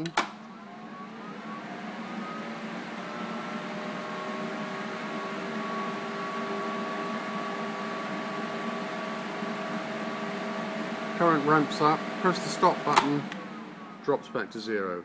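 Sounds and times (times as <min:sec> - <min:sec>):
power supply humming and whirring: 0:00.0 - 0:15.0.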